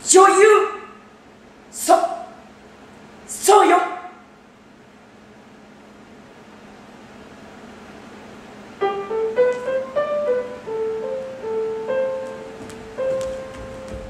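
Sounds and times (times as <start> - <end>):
hall ambience: 6.5 - 14.0
piano playing slow melody: 8.7 - 14.0.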